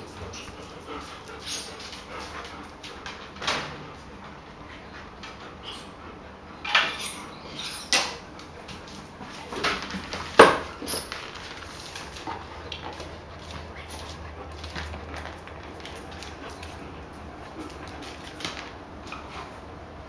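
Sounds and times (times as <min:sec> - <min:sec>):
balls knocking on tiled floor: 0:09.7 - 0:11.2.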